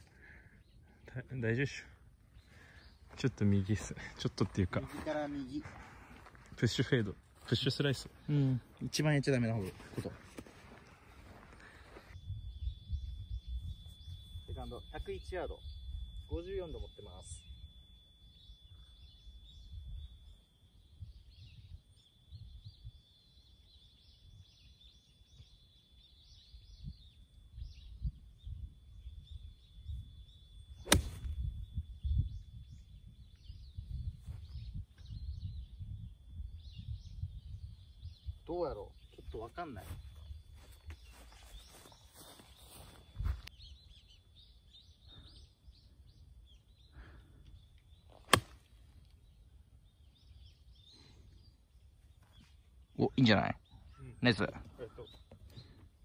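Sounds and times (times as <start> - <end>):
birds chirping: 0.0 - 56.0
golf club striking ball: 30.9 - 31.4, 48.3 - 48.6.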